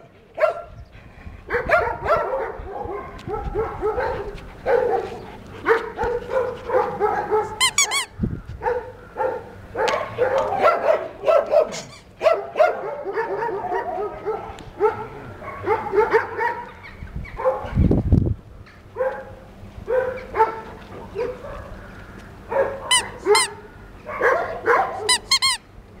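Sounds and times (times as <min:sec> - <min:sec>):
dogs barking and yelping: 0:00.4 - 0:00.8, 0:01.4 - 0:18.0, 0:18.9 - 0:25.6.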